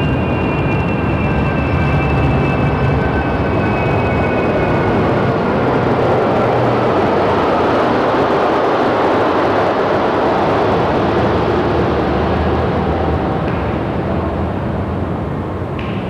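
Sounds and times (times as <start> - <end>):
loud rushing noise: 0.0 - 16.0.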